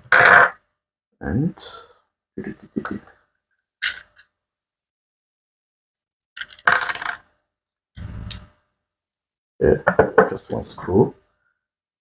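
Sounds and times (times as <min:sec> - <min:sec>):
metal parts clicking and clinking: 0:03.8 - 0:04.3, 0:06.4 - 0:07.3.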